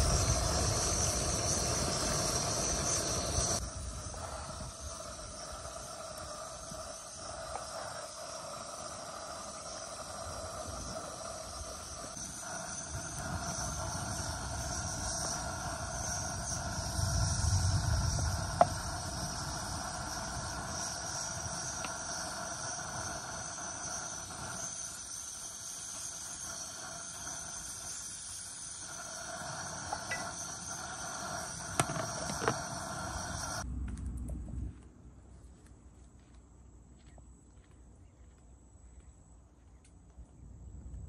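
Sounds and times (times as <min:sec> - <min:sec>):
insects droning: 0:00.0 - 0:41.0
low rumble: 0:33.6 - 0:35.4.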